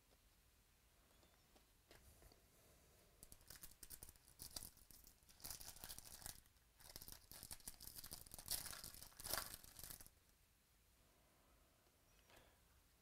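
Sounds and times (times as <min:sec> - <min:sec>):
foil wrapper crinkling and tearing: 0:03.2 - 0:10.1.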